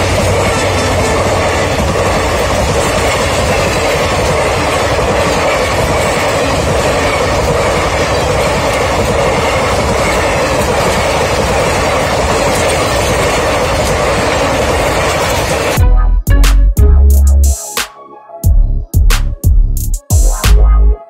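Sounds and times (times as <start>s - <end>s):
train wheels running on rails: 0.0s - 15.8s.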